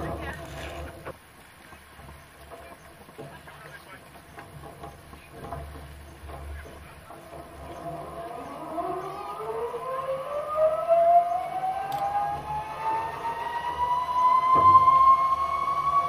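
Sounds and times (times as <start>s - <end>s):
low rumble: 4.6s - 16.0s
zipwire pulley whine: 7.2s - 16.0s.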